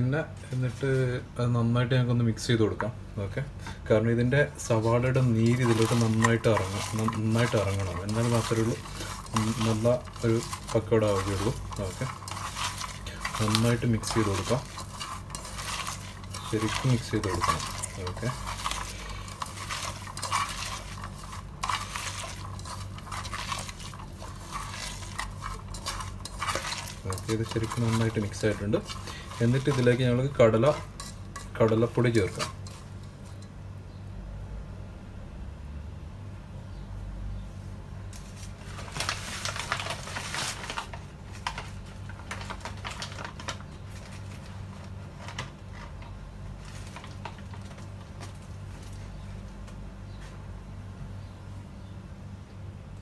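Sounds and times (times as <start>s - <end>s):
low steady hum: 0.0s - 53.0s
onions squelching in hand: 4.6s - 33.5s
scraping against metal pot: 4.7s - 33.6s.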